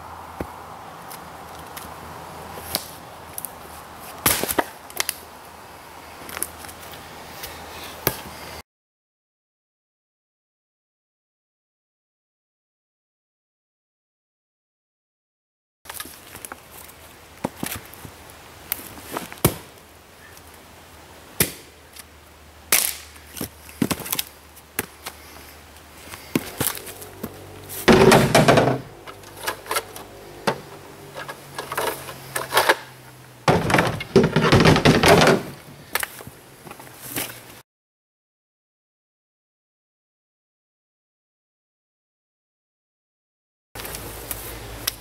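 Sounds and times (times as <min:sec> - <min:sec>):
wood clattering into truck bed: 0:27.8 - 0:35.7
firewood pieces knocking: 0:27.9 - 0:29.9, 0:33.5 - 0:36.1.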